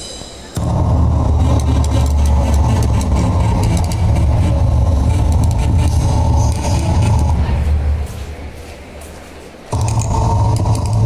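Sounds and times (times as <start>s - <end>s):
low engine-like rumble over loudspeakers: 0.2s - 11.0s.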